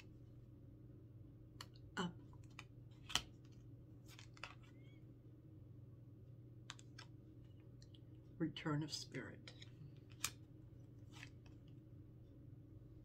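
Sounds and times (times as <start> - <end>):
low steady hum: 0.0 - 13.0
cards being shuffled: 2.3 - 4.8, 6.7 - 7.2, 9.5 - 10.4, 11.0 - 11.7.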